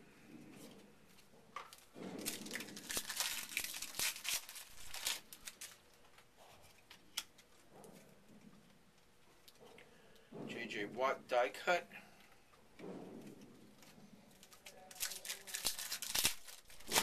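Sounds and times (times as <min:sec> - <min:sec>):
wrapper tearing and crinkling: 0:01.7 - 0:06.0, 0:14.4 - 0:17.0.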